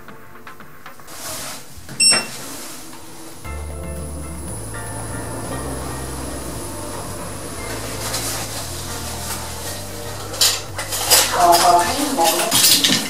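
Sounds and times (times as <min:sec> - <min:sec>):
lift car humming: 0:01.3 - 0:13.0
metallic clattering and clinking: 0:06.4 - 0:13.0.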